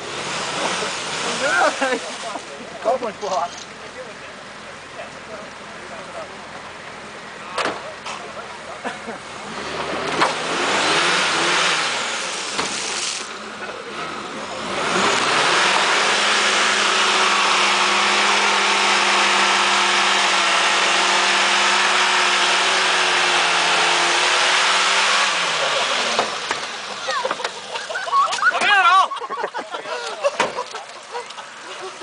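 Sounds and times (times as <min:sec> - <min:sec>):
engine revving hard: 0:00.0 - 0:02.3, 0:09.3 - 0:27.2.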